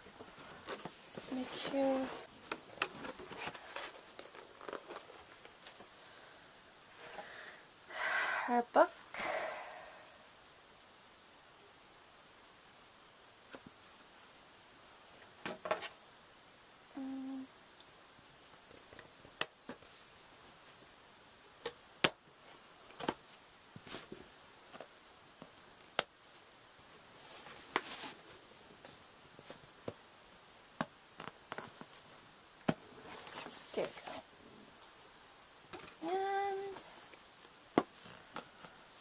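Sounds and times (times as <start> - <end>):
packaging rustling: 0.3 - 5.7.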